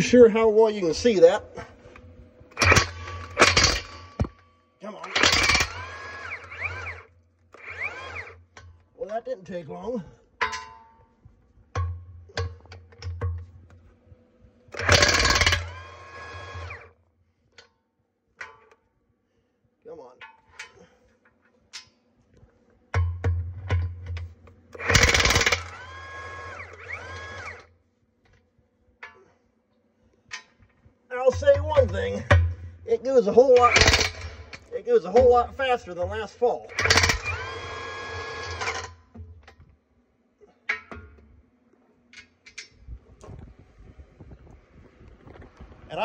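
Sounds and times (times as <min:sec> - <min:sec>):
impact wrench motor whining: 0:01.9 - 0:04.4, 0:05.0 - 0:08.6, 0:14.7 - 0:17.0, 0:24.7 - 0:27.8, 0:33.6 - 0:34.7, 0:36.6 - 0:39.1
impact wrench hammering: 0:02.5 - 0:04.4, 0:14.7 - 0:15.8, 0:22.9 - 0:26.3, 0:33.6 - 0:39.4.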